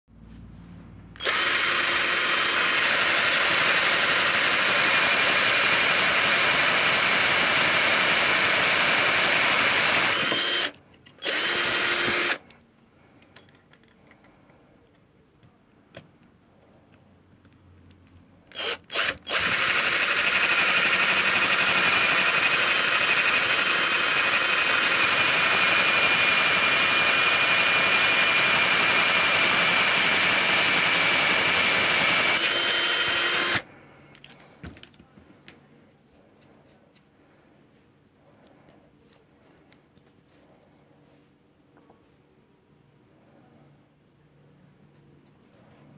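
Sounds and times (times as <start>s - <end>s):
power drill whining: 1.2s - 12.5s, 18.5s - 33.7s.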